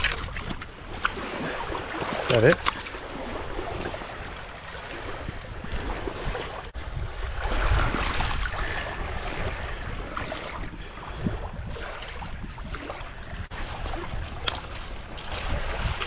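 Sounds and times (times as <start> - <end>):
water lapping on shore: 0.0 - 16.0
wind on microphone: 3.2 - 16.0.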